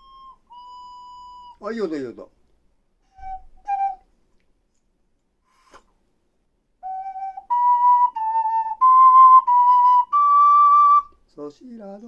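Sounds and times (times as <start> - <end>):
ocarina notes: 0.0 - 2.2, 3.0 - 4.1, 6.8 - 12.0.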